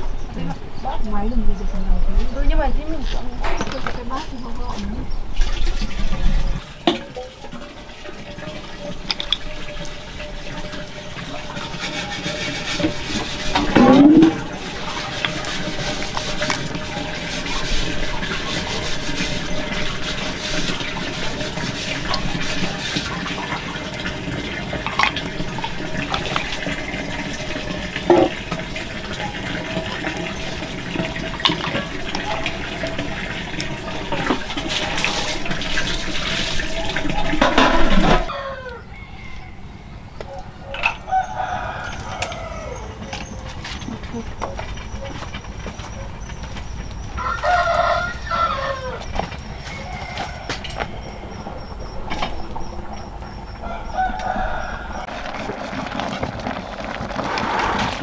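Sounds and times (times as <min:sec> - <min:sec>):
running water: 0:02.4 - 0:38.4, 0:41.0 - 0:58.0.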